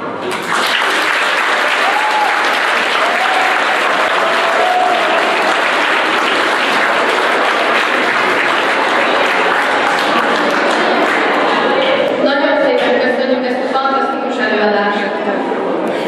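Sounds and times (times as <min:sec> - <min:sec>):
children applauding: 0:00.2 - 0:12.1.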